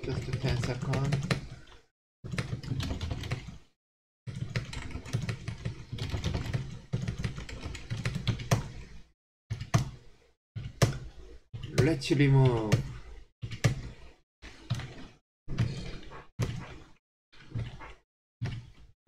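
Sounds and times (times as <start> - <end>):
keyboard typing: 0.0 - 1.6.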